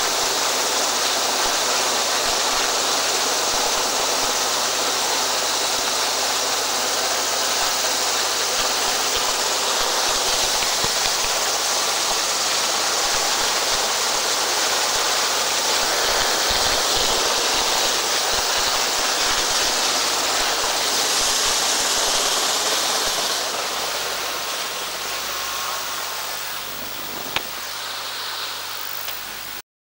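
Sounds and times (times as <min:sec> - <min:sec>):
boat rushing through water: 0:00.0 - 0:27.7
spray along hull: 0:00.0 - 0:29.6
wind buffeting microphone: 0:26.6 - 0:27.6.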